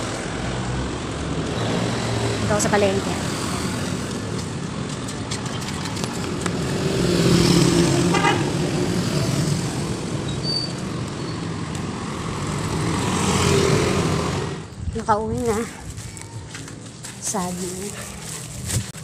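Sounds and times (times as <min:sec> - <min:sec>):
vehicle engine passing: 0:00.0 - 0:10.2, 0:10.9 - 0:14.7
steady road noise: 0:00.0 - 0:19.0.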